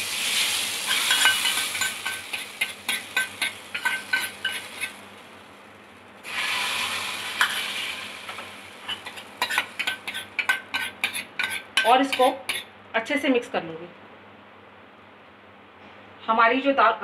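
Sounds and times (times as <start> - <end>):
hot oil sizzling: 0.0 - 12.7
spoon clicking against pan: 0.9 - 4.6.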